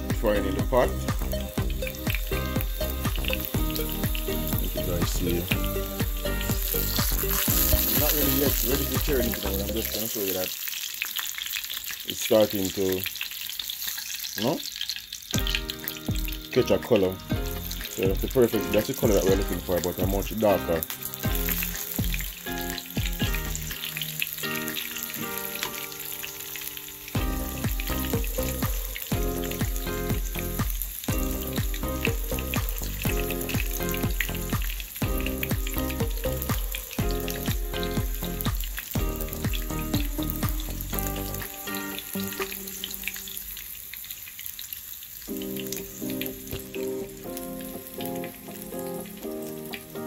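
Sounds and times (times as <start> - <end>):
background music with bass: 0.0 - 10.0, 15.4 - 23.9, 27.2 - 42.6
patty sizzling in oil: 0.0 - 50.0.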